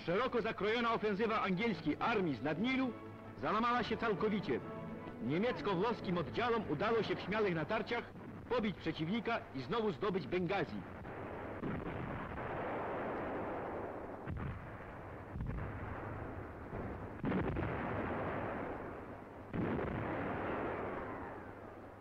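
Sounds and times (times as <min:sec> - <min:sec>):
muffled artillery booms: 0:06.4 - 0:22.0.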